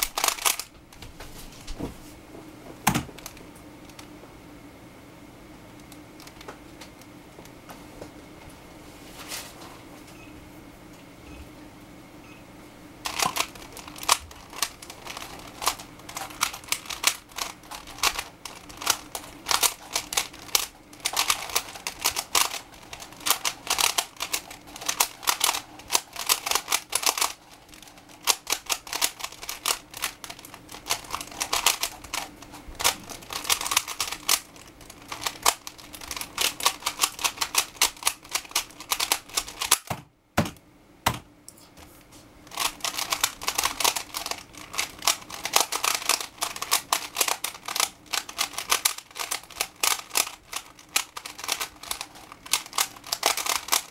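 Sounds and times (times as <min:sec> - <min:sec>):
puzzle cube clicking: 0:00.0 - 0:00.7, 0:13.1 - 0:27.4, 0:28.2 - 0:39.9, 0:42.5 - 0:53.9.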